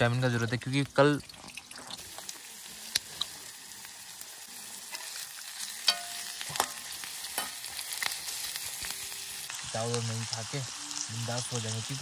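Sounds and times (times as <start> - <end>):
hot oil sizzling in a pan: 0.0 - 12.0
spoon knocking against pan: 5.9 - 6.8.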